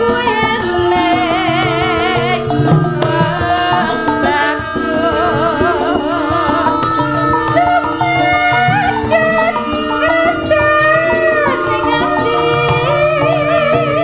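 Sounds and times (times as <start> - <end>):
gamelan accompaniment: 0.0 - 14.0
woman singing with vibrato: 0.0 - 14.0
hand drum strokes: 1.5 - 5.6.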